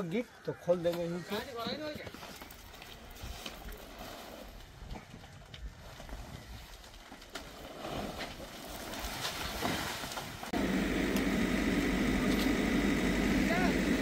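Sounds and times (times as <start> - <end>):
diesel engine running: 10.5 - 14.0.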